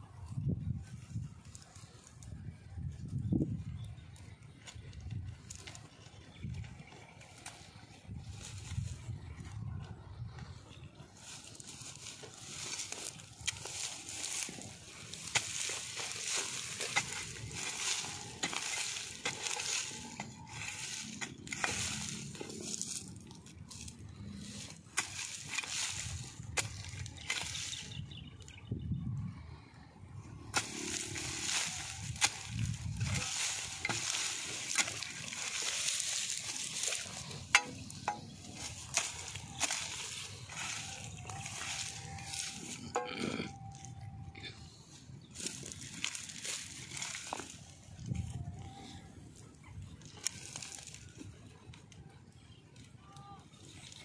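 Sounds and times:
hand tool digging into dry soil: 3.7s - 9.6s, 11.2s - 28.2s, 30.4s - 44.5s, 45.2s - 54.0s
digging tool chopping soil: 30.5s - 43.2s.

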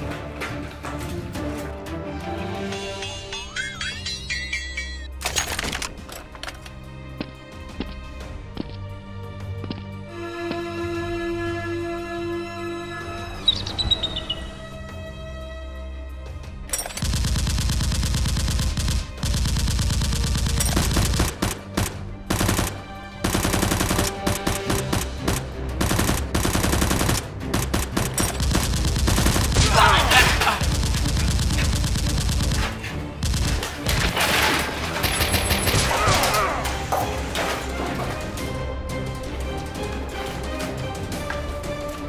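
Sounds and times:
automatic gunfire: 17.0s - 34.2s.

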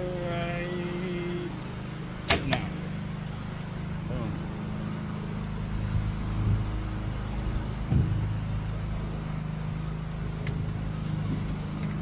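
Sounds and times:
low machine hum: 0.0s - 12.0s
dull thump: 7.9s - 8.2s.

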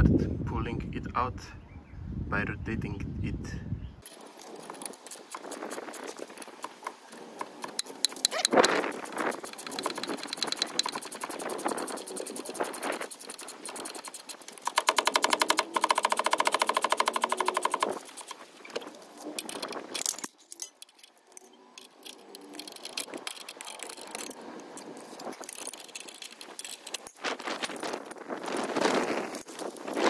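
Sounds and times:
ratchet wrench clicking: 9.4s - 12.6s
metal handling sounds: 17.4s - 30.0s.

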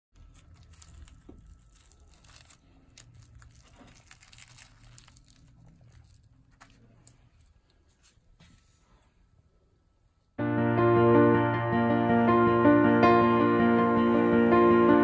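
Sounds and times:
flaky bread crackling and tearing: 0.2s - 8.1s.

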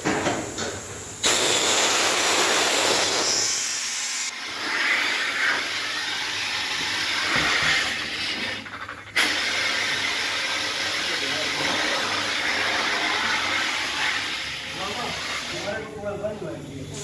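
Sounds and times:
low uneven workshop noise: 0.0s - 17.0s
compressed air hissing: 0.4s - 8.5s.

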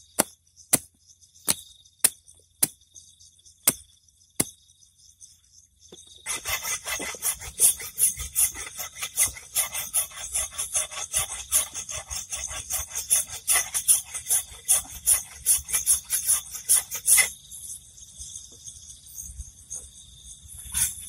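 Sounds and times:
dry rasping rattle: 6.0s - 17.3s.

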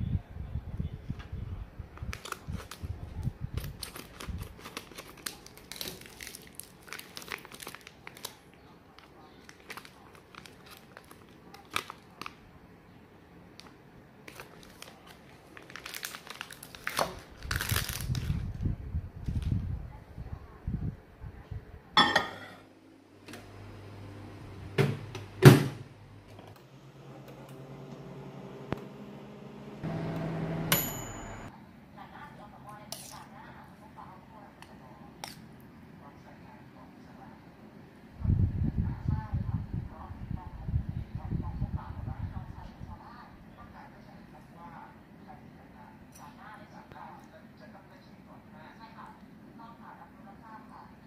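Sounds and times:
plastic pouch crinkling: 2.1s - 2.9s, 3.6s - 12.4s, 14.2s - 18.6s
microwave humming: 22.0s - 31.5s.

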